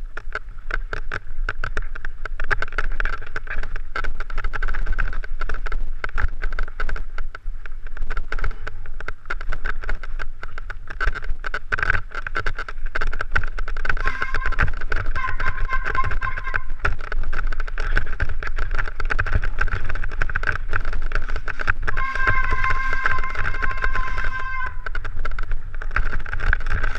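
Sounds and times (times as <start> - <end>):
bike rattling over stones: 0.0 - 26.9
tyre and wind rumble: 0.0 - 26.9
high-pitched buzz: 14.0 - 16.9, 21.9 - 25.0.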